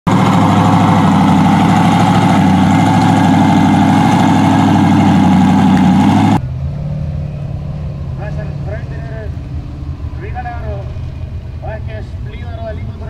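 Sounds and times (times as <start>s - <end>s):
buggy engine idling: 0.1s - 13.0s.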